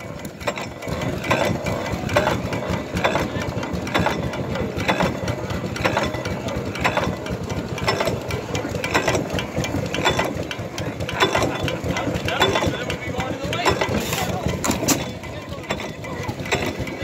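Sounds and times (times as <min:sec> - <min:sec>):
sharp engine clack: 0:00.0 - 0:17.0
stationary engine clattering: 0:00.0 - 0:17.0.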